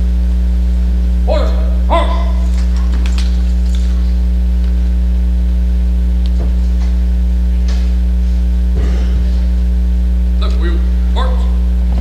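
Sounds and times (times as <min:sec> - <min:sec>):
loud electrical mains hum: 0:00.0 - 0:12.0.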